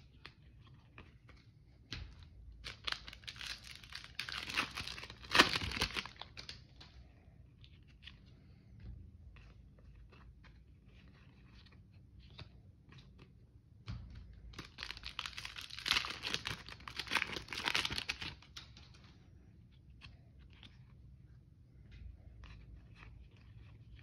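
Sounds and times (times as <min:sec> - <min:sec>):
cards clicking and rustling: 0:00.1 - 0:08.3, 0:14.4 - 0:21.1
plastic wrapper tearing and crinkling: 0:02.6 - 0:06.6, 0:14.5 - 0:18.6.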